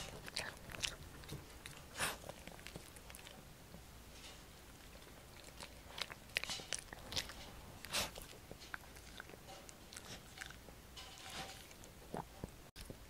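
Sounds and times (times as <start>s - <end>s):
dog chewing crunchy treat: 0.0s - 3.5s, 4.1s - 13.0s.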